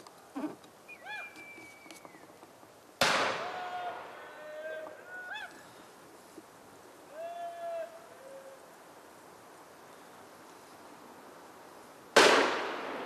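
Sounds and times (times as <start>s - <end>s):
gunshot with echo: 3.0s - 3.5s, 12.2s - 13.0s.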